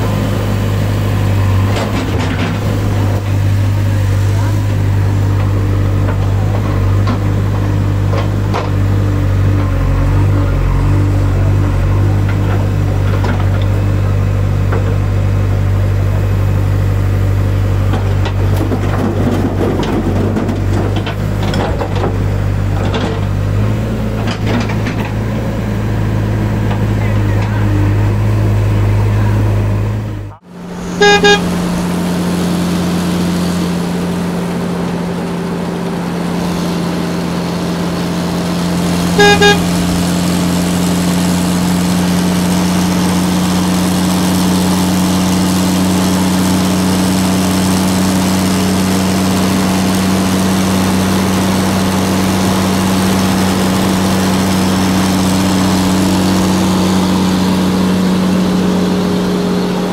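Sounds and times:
diesel engines droning: 0.0s - 59.9s
vehicle horn double toot: 30.7s - 31.8s, 39.0s - 40.1s.

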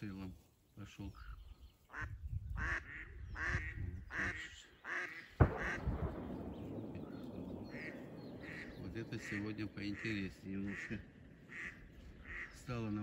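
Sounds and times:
duck quacking: 1.9s - 5.8s, 7.8s - 12.6s
shotgun shot with echo: 5.4s - 9.4s.

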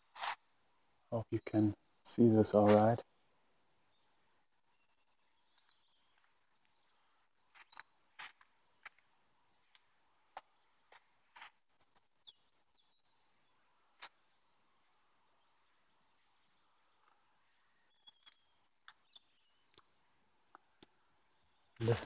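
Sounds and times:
bird chirps: 3.9s - 8.0s, 11.4s - 14.7s, 15.4s - 20.0s.

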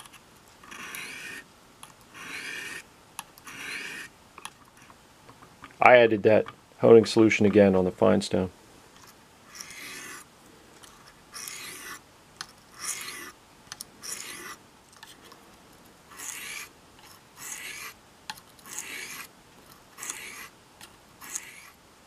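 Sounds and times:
knife scraping on sharpening stone: 0.7s - 1.4s, 2.1s - 2.8s, 3.4s - 4.1s, 9.5s - 10.2s, 11.3s - 12.0s, 12.8s - 13.4s, 14.0s - 14.6s, 16.1s - 18.0s, 18.6s - 19.3s, 20.0s - 20.5s, 21.2s - 21.8s.

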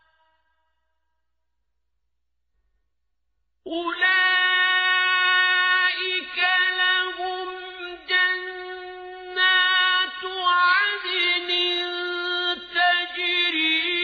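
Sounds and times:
man reciting melodically: 3.7s - 14.0s.

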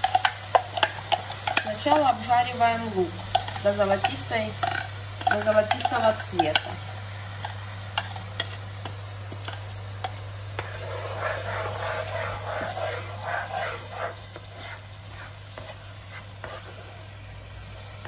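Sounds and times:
spatula scraping a wok: 0.0s - 2.3s, 9.4s - 17.2s
onion sizzling in hot oil: 0.0s - 18.0s.

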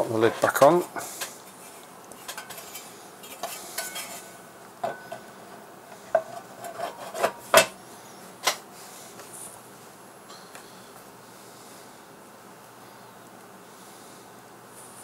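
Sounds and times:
metal lid scraping and clicking: 2.1s - 5.3s, 5.9s - 7.8s.

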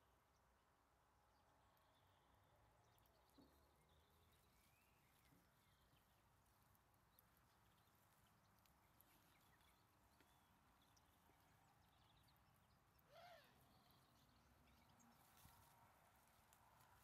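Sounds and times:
faint outdoor hiss: 0.0s - 17.0s
small birds chirping: 0.0s - 17.0s
soft ticks: 6.7s - 11.3s
short animal call: 13.1s - 13.6s.

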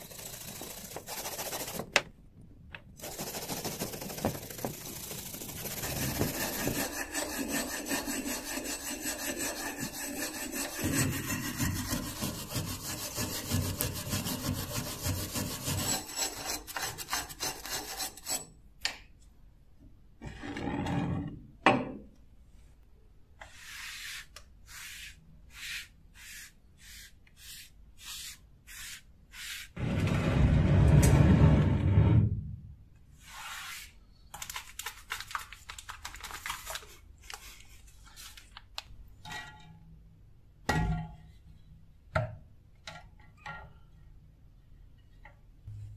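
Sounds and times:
wire brush scrubbing rusty steel: 3.0s - 18.5s
slow rubbing strokes: 23.4s - 32.1s, 33.2s - 34.0s.

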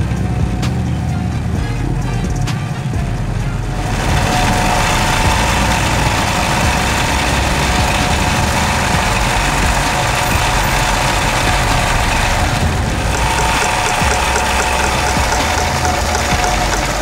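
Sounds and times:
sewing machine running: 4.0s - 17.0s.

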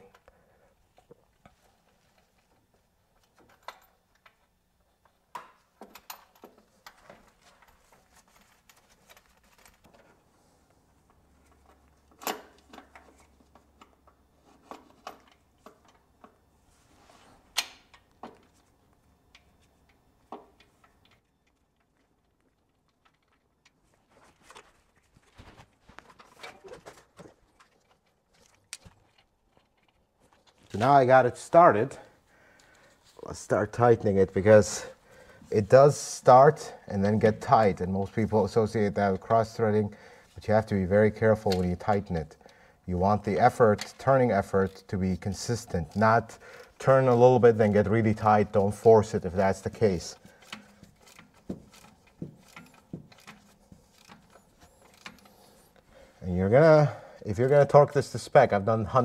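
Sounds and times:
small clicks taps and rustles: 0.0s - 16.5s, 17.6s - 31.0s, 45.5s - 55.9s.

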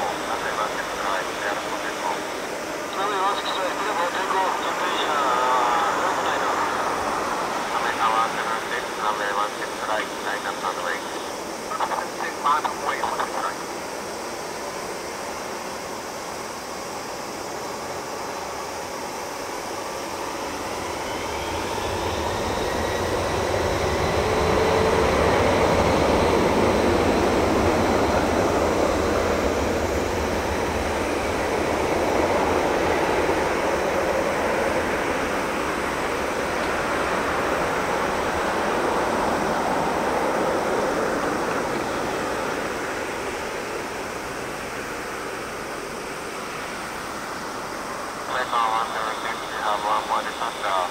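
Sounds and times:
jet engines spooling up: 0.0s - 50.9s.

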